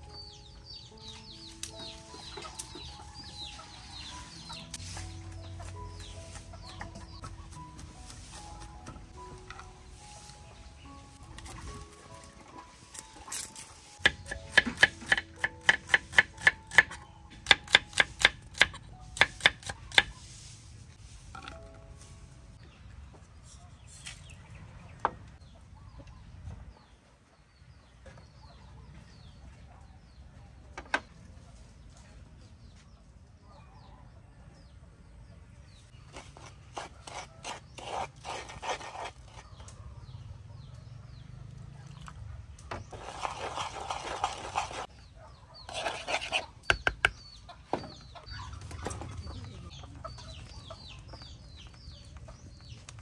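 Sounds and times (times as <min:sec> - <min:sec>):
chickens clucking: 0:01.0 - 0:09.6, 0:42.7 - 0:53.0.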